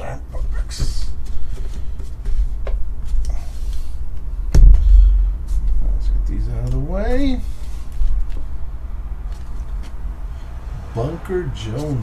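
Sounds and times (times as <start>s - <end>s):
low hum: 1.8s - 12.0s
sharp thump: 4.5s - 6.5s.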